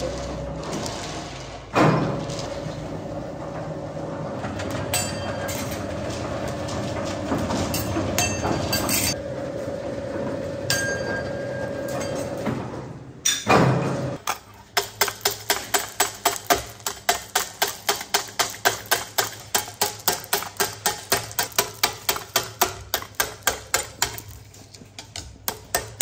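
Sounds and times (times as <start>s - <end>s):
machine rollers humming and rumbling: 0.0s - 14.2s.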